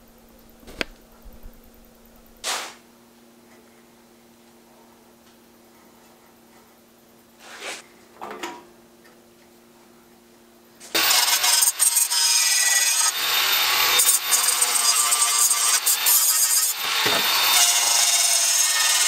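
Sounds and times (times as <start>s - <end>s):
angle grinder grinding steel: 11.0s - 19.0s.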